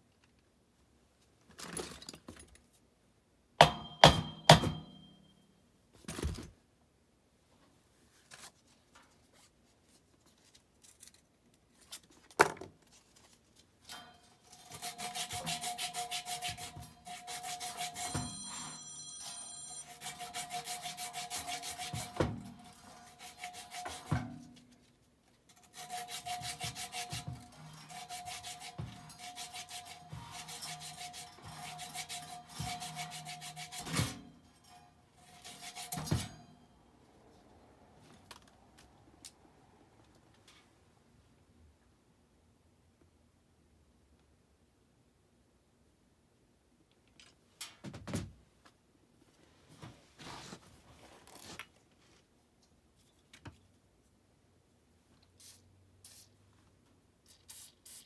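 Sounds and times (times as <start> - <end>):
rhythmic scraping on metal: 13.9 - 24.5, 25.6 - 36.6.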